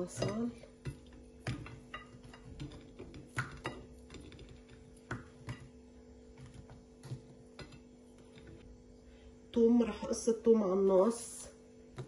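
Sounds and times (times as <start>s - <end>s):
food pieces tapping in glass dish: 0.0s - 5.8s
faint steady hum: 0.0s - 12.0s.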